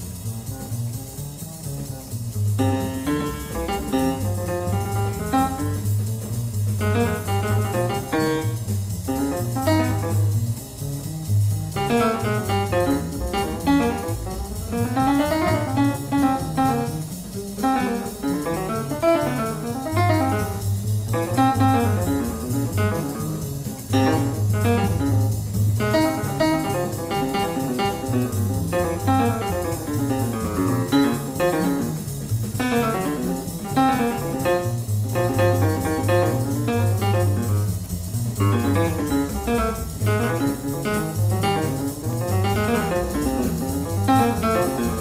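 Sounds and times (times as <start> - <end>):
live jazz: 0.0 - 45.0.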